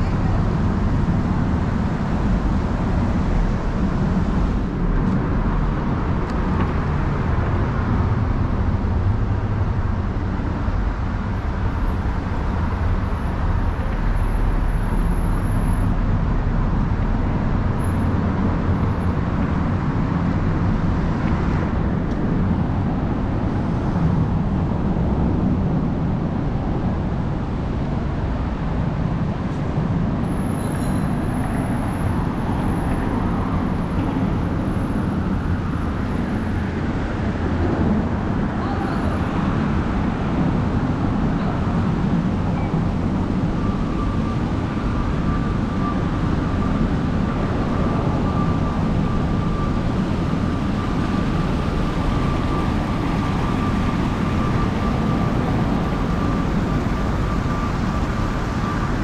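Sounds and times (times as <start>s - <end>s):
road traffic rumble: 0.0s - 59.0s.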